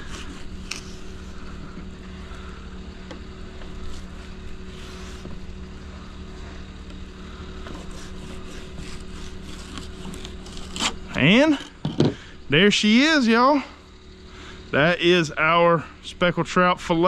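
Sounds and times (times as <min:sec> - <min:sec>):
fillet knife scraping: 0:00.0 - 0:01.3, 0:07.6 - 0:11.8
low motor hum: 0:00.0 - 0:17.0.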